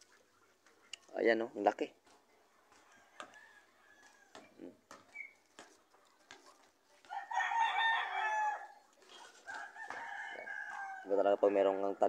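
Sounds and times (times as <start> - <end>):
rooster crowing: 2.8 - 4.4, 7.1 - 8.8, 9.5 - 11.1.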